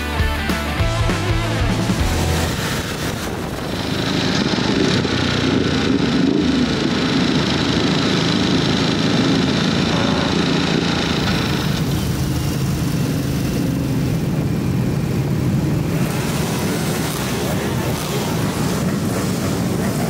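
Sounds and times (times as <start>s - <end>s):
motorcycle engine and exhaust: 0.0s - 20.0s
other motorcycles riding: 0.0s - 20.0s.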